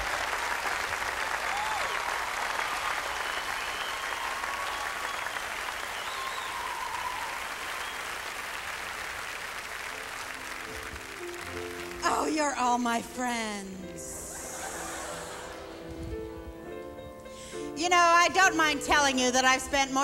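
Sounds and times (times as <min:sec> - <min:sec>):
large audience applauding: 0:00.0 - 0:12.4, 0:14.3 - 0:16.4.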